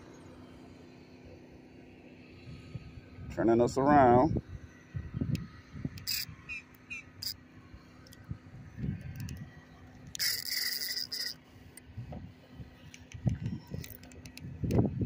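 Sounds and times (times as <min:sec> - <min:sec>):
fishing reel drag buzzing: 0:06.0 - 0:07.4, 0:10.1 - 0:11.5.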